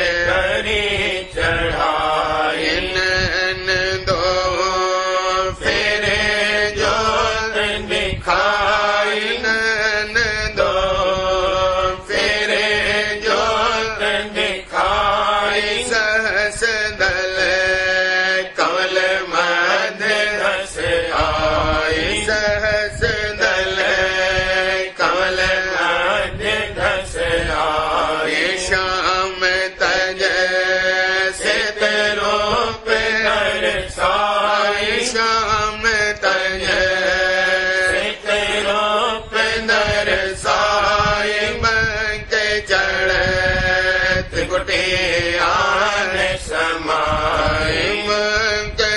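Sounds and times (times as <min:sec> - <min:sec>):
person chanting a hymn: 0:00.0 - 0:48.9
steady drone: 0:00.0 - 0:48.9.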